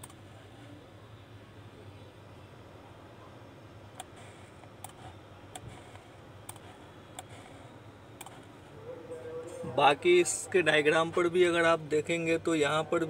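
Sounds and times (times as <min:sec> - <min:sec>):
low steady hum: 0:00.0 - 0:13.0
computer mouse clicks: 0:04.0 - 0:07.5, 0:08.2 - 0:08.5.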